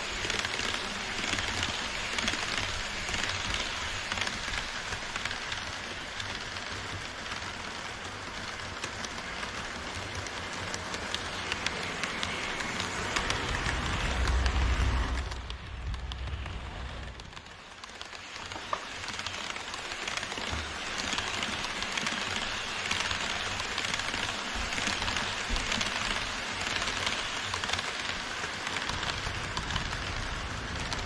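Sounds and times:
model train wheels rattling on rails: 0.0 - 31.0
low rumble: 11.3 - 17.4.

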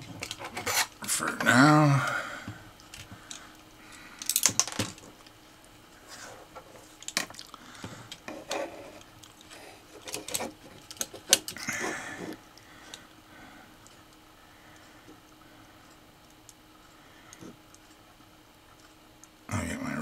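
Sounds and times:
hands handling small robot chassis: 4.2 - 5.1, 6.6 - 11.6.

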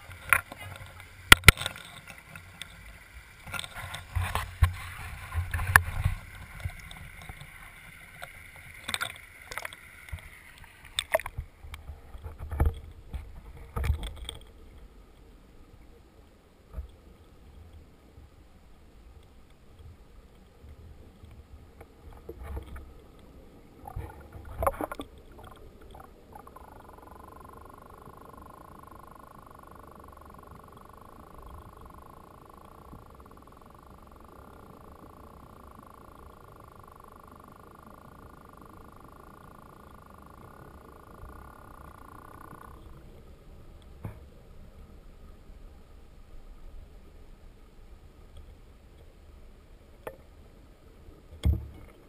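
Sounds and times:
rushing creek water: 0.0 - 13.9
muffled underwater knocks: 51.4 - 51.9.

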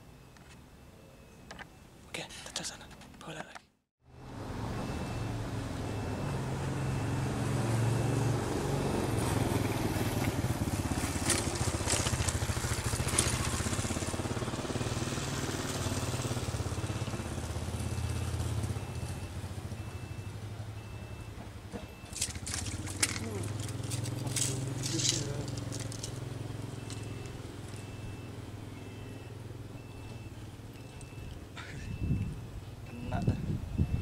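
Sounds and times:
motorcycle engine passing: 4.5 - 21.0, 21.7 - 31.3.

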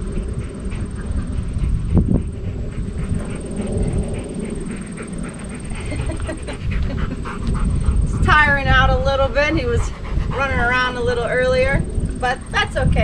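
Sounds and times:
dog panting: 0.0 - 13.0
wind rumble on microphone: 0.0 - 13.0.

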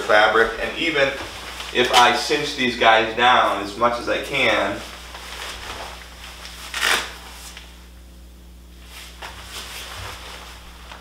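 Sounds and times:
waterproof fabric rustling: 0.2 - 2.5, 8.8 - 11.0
fabric and cuff tab scraping: 6.7 - 7.6.

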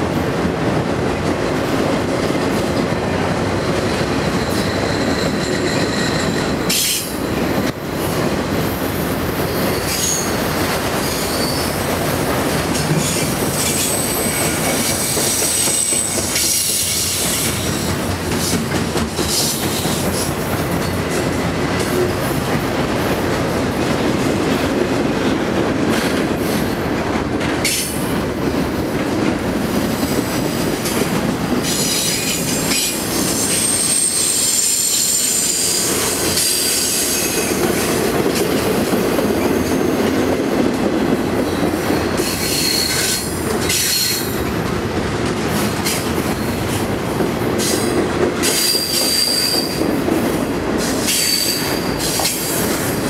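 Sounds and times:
freight train rolling past: 0.0 - 53.0
train wheels squealing: 3.5 - 7.8, 9.4 - 11.9, 12.9 - 17.9, 31.6 - 38.0, 39.4 - 40.3, 41.5 - 44.4, 47.6 - 49.8, 50.8 - 52.7.

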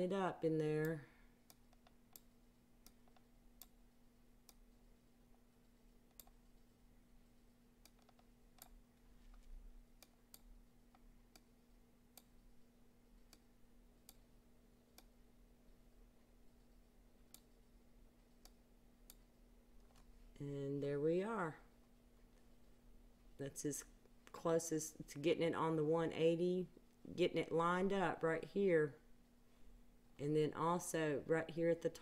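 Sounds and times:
low electrical hum: 0.0 - 32.0
computer mouse clicks: 0.8 - 3.8, 6.1 - 6.6, 7.8 - 8.8, 13.2 - 14.3, 16.5 - 17.7, 18.3 - 20.0.

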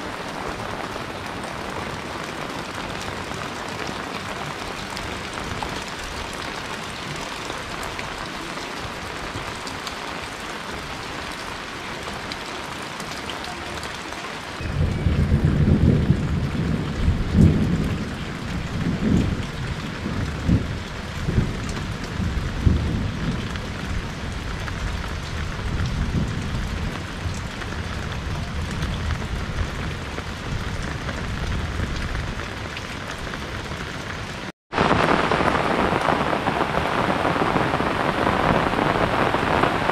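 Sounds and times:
rain on a tiled roof: 0.0 - 39.9
thunder rumbling: 14.6 - 33.8, 34.7 - 39.9.

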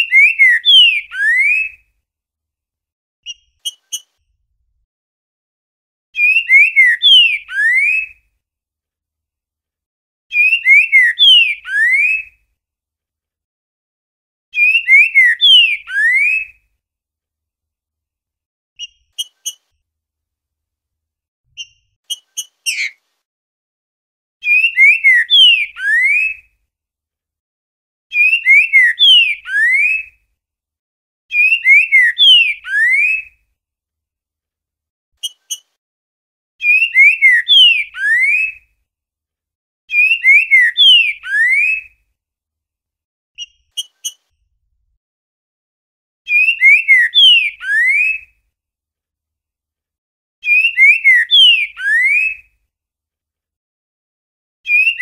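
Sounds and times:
bird singing slurred whistles: 0.0 - 1.8, 6.2 - 8.2, 10.3 - 12.3, 14.6 - 16.5, 24.4 - 26.4, 28.1 - 30.1, 31.3 - 33.3, 36.6 - 38.6, 39.9 - 41.9, 46.3 - 48.3, 50.4 - 52.4, 54.7 - 55.0.

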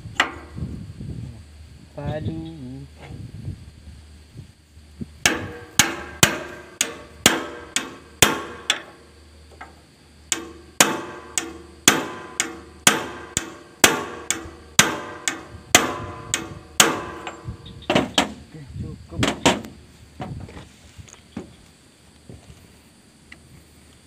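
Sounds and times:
hammer striking metal wrench: 5.3 - 8.9, 10.3 - 17.5.

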